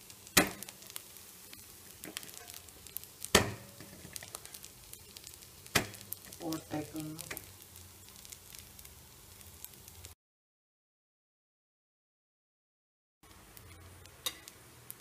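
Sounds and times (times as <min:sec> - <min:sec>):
batter sizzling in a pan: 0:00.0 - 0:10.2, 0:13.2 - 0:15.0.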